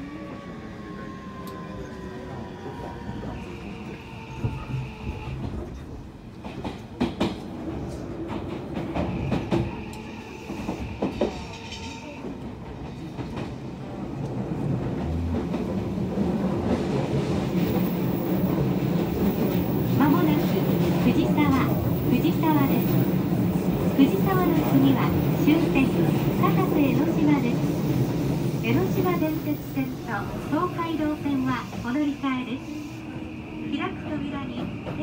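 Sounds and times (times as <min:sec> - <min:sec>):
train wheels rumbling on rails: 0:00.2 - 0:35.0
clacks over rail joints: 0:05.4 - 0:09.7.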